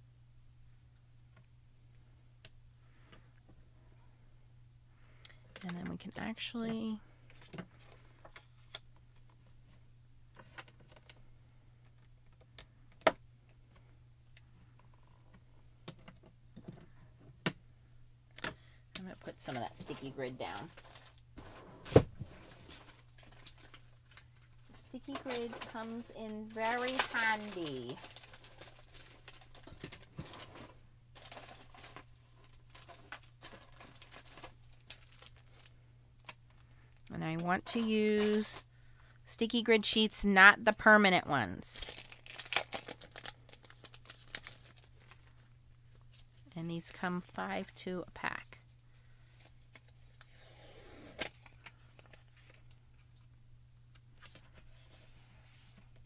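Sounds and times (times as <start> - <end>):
low steady hum: 0.0 - 56.0
clicks and rustles of handling: 22.2 - 38.6.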